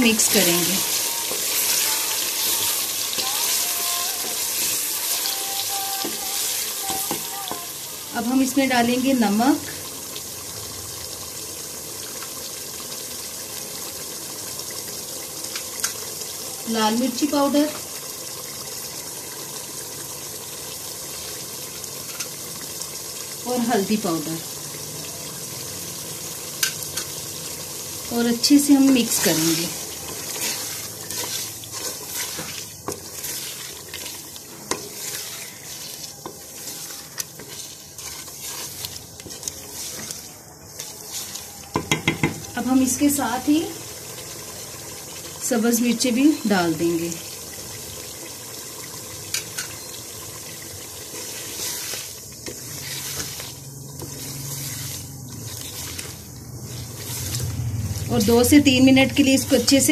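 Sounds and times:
food sizzling in a metal pot: 0.0 - 59.9
spoon knocking against pot: 41.7 - 42.4.

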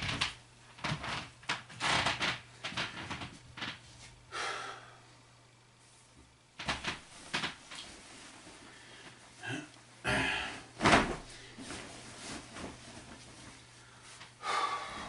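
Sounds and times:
steady low hum: 0.0 - 15.0
person breathing: 4.3 - 5.2, 8.6 - 10.7, 11.3 - 11.8, 13.7 - 15.0.

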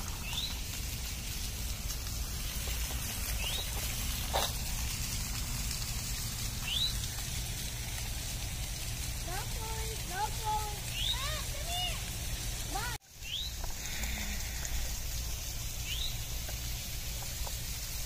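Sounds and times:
waterfall splashing into pond: 0.0 - 18.0
bird chirping: 0.1 - 0.6, 2.5 - 3.9, 6.6 - 7.0, 10.8 - 11.5, 13.2 - 13.7, 15.8 - 16.4.

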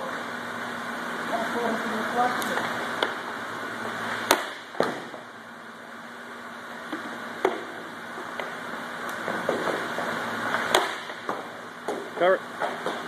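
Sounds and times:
steady hum: 0.0 - 13.0
hockey pucks striking pads: 2.6 - 3.3, 4.1 - 5.2, 6.8 - 13.0.

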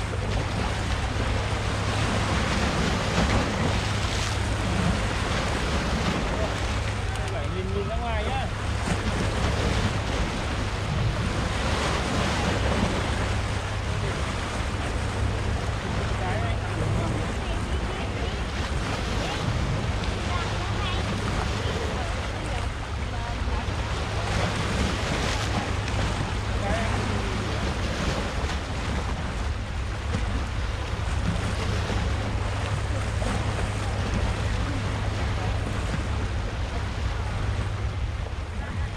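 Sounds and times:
waves washing on rocky shore: 0.0 - 38.9.

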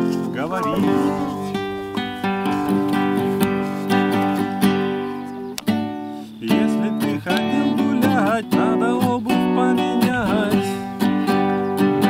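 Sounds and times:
person singing: 0.0 - 1.8, 6.4 - 12.0
acoustic guitar strummed chords: 0.0 - 12.0.

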